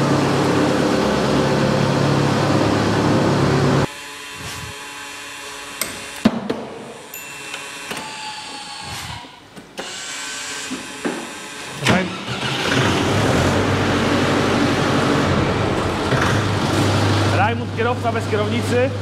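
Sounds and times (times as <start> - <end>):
diesel engine starting and idling: 11.8 - 18.4.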